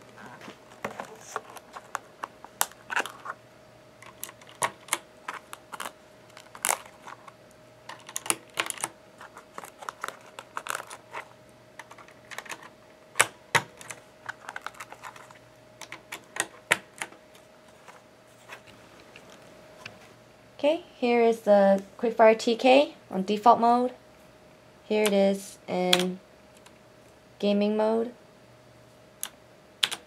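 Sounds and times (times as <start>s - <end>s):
plastic keycaps clicking onto keyboard: 7.9s - 8.9s, 11.8s - 15.2s.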